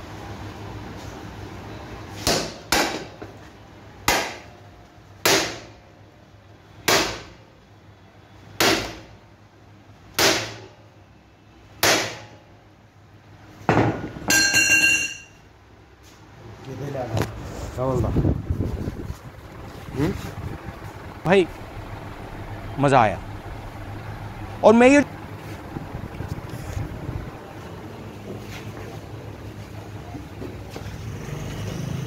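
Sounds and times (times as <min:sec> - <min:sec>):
hammer striking steel frame: 0:04.1 - 0:04.5, 0:05.2 - 0:05.8, 0:06.9 - 0:07.4, 0:10.2 - 0:10.7, 0:11.8 - 0:12.4, 0:13.7 - 0:15.3
ringing metal clang: 0:14.3 - 0:15.4.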